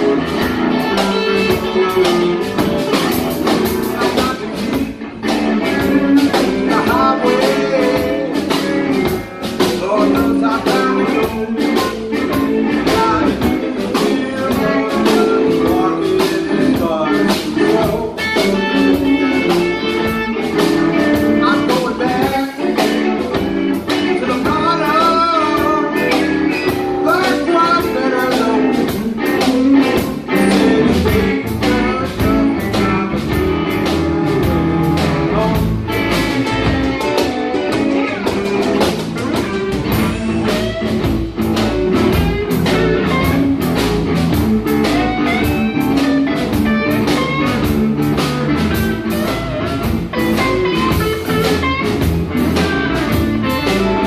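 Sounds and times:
live blues band: 0:00.0 - 0:54.0.

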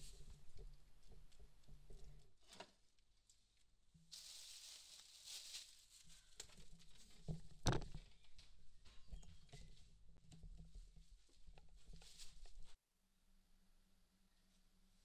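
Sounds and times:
rustle of movement: 0:04.1 - 0:07.6.

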